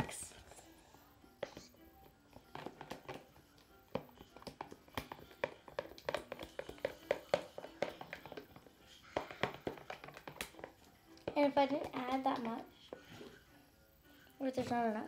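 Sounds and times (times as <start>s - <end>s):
utensil stirring slime in plastic tub: 2.4s - 13.4s.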